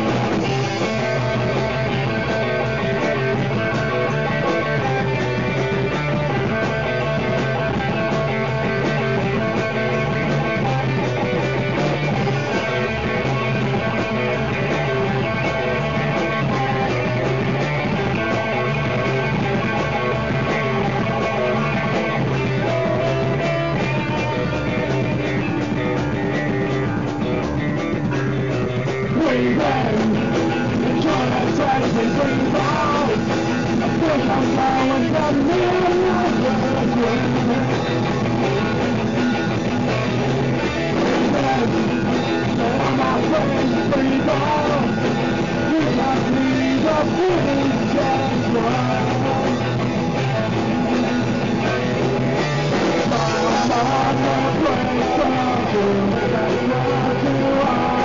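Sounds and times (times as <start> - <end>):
punk rock band playing: 0.0 - 58.0.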